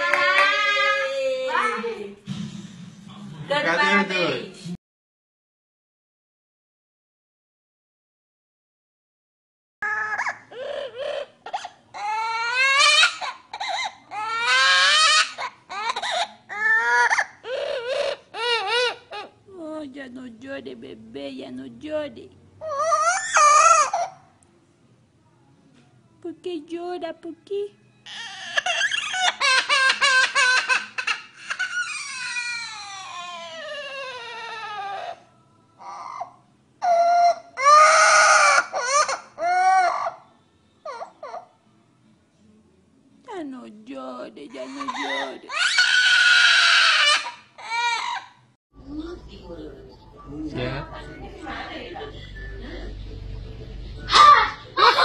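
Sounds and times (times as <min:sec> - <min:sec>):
parrot mimicking sobbing wails: 0:00.0 - 0:01.7, 0:09.8 - 0:19.4, 0:22.6 - 0:24.3, 0:28.1 - 0:40.2, 0:44.6 - 0:48.4.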